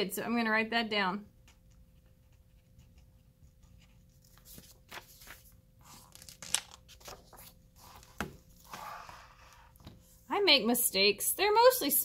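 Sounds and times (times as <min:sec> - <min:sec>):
paper rustling: 0:03.6 - 0:09.6
book page turning: 0:03.6 - 0:10.0.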